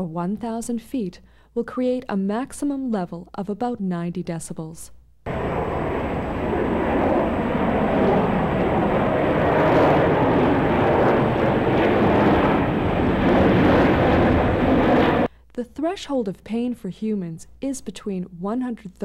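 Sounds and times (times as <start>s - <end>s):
jet airliner flying overhead: 5.3s - 15.3s.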